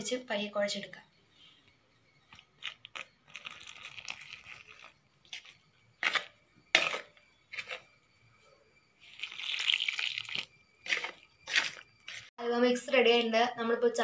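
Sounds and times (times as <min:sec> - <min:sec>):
hot water pouring into bowl: 0:02.8 - 0:05.0, 0:09.1 - 0:10.5.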